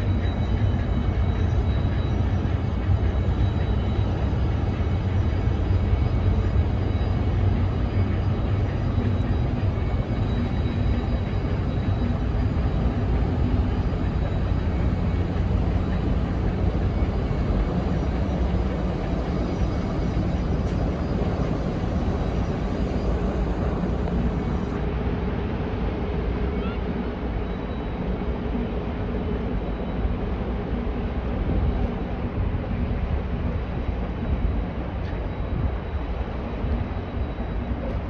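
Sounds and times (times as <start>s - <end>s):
ship engines low rumble: 0.0s - 38.0s.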